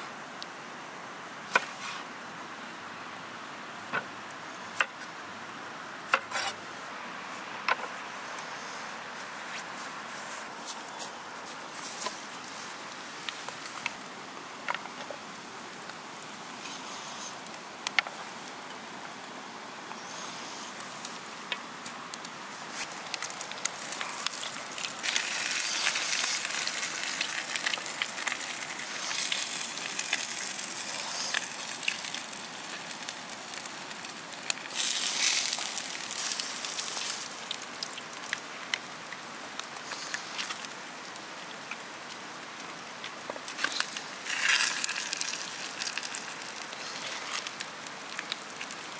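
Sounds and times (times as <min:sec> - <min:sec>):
wood fire crackling: 0:07.4 - 0:48.9
meat sizzling in a cauldron: 0:22.7 - 0:48.9.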